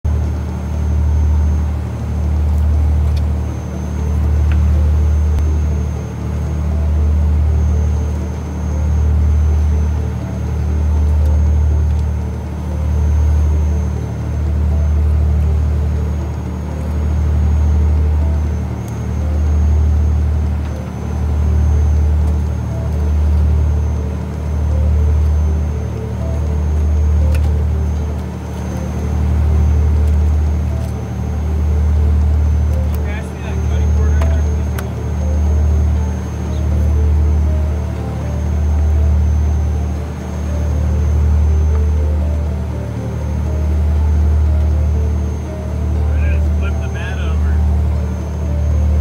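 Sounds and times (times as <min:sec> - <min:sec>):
boat engine drone: 0:00.0 - 0:49.0
thin high whine: 0:32.4 - 0:49.0.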